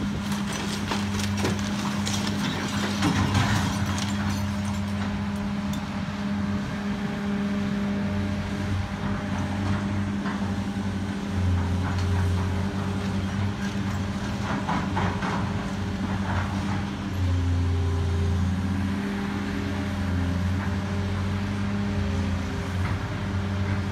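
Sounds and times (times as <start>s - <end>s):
debris crunching and clattering: 0.0s - 5.3s
excavator diesel engine running: 0.0s - 23.9s.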